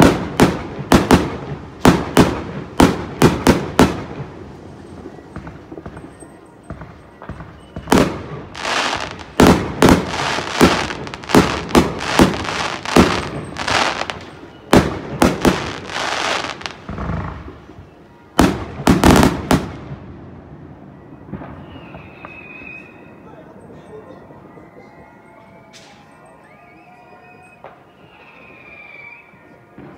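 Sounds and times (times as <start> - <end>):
fireworks hissing: 0.0 - 18.0
fireworks bursting with loud bangs: 0.0 - 23.3.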